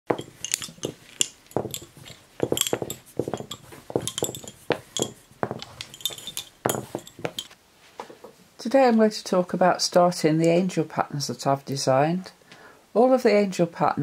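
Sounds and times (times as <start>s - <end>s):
small hard objects clinking: 0.1s - 7.6s.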